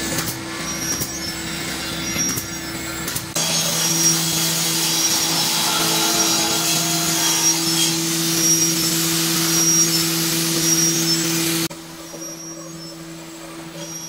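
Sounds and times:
angle grinder sanding wood: 0:03.4 - 0:11.7.

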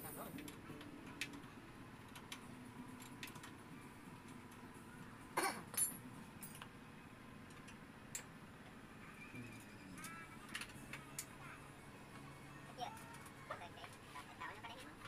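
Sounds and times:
sharp metal clinks: 0:05.7 - 0:06.6.

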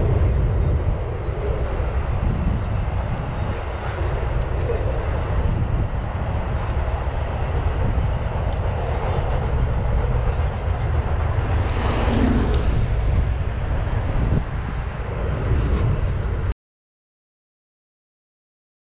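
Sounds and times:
low rumble: 0:00.0 - 0:16.5
car passing: 0:08.9 - 0:15.4.

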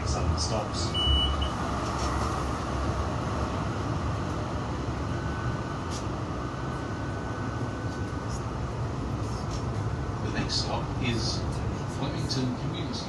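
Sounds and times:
faint steady whine: 0:00.0 - 0:13.0
tram wheels rumbling on rails: 0:00.0 - 0:13.0.

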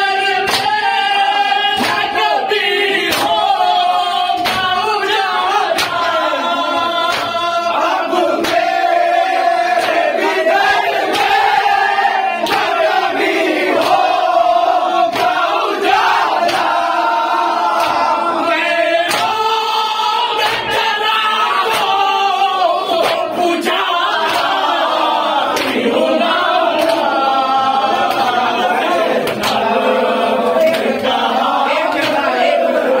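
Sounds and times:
men chanting in unison: 0:00.0 - 0:33.0
hand strikes: 0:00.4 - 0:00.8, 0:03.1 - 0:03.4, 0:04.4 - 0:05.1, 0:07.1 - 0:07.4, 0:19.0 - 0:19.4.

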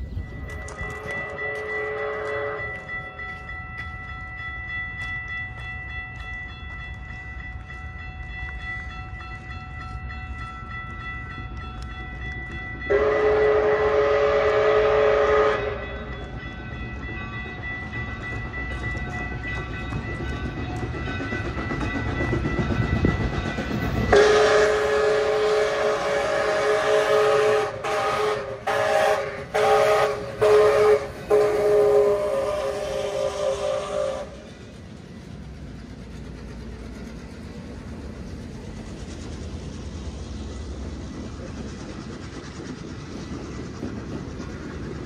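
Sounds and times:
steam locomotive chime whistle: 0:00.0 - 0:34.8.

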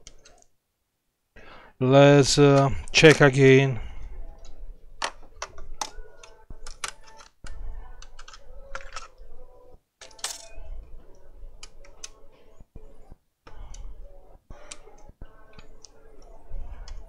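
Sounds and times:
laptop parts clicking and clinking: 0:04.4 - 0:07.4, 0:08.0 - 0:09.2, 0:10.0 - 0:10.6.

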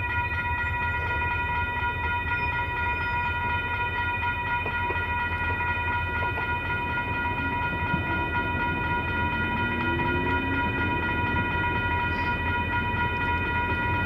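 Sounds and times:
diesel locomotive engine rumble: 0:00.0 - 0:14.0
railroad crossing bell ringing: 0:00.0 - 0:14.0.

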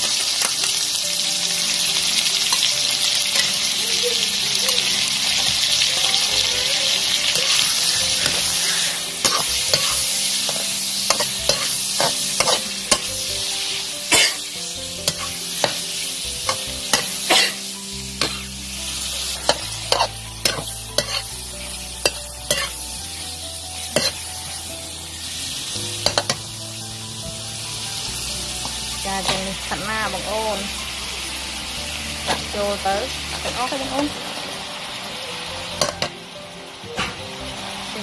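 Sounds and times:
food sizzling in a wok: 0:00.0 - 0:38.0
metal spatula scraping a wok: 0:07.3 - 0:13.2, 0:14.1 - 0:18.7, 0:19.3 - 0:23.2, 0:23.8 - 0:24.6.

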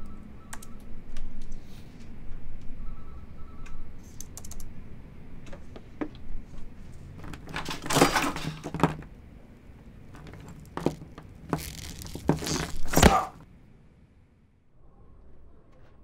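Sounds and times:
cables rattling against table: 0:06.8 - 0:09.2, 0:09.9 - 0:13.4.

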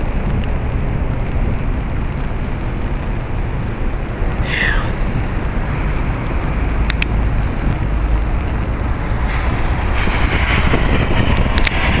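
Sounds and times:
wind buffeting microphone: 0:00.0 - 0:12.0
hiss: 0:04.4 - 0:05.0.

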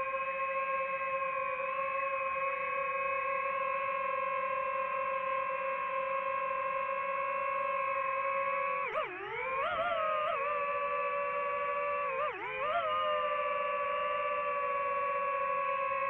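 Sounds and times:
drone propellers whining: 0:08.8 - 0:15.3.

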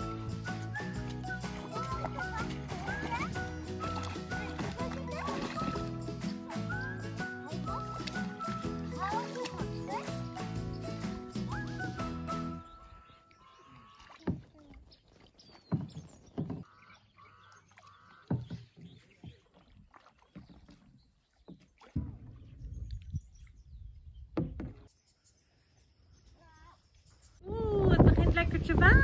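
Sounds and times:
paddle splashing in water: 0:00.0 - 0:23.6
bird calling rising notes: 0:05.5 - 0:14.1, 0:16.0 - 0:18.5.

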